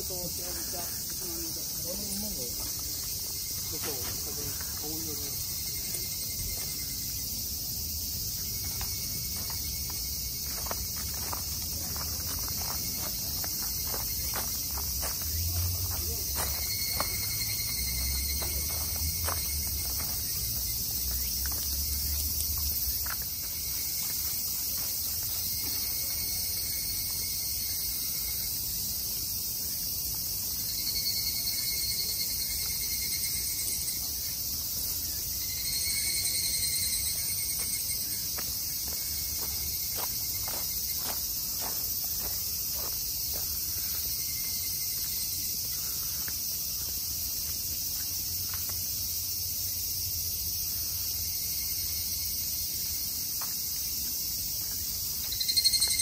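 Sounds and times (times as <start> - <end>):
cicadas buzzing: 0.0 - 56.0
nearby cicada call: 0.0 - 56.0
footsteps crunching on gravel: 0.2 - 6.9, 8.6 - 26.8, 37.4 - 48.9.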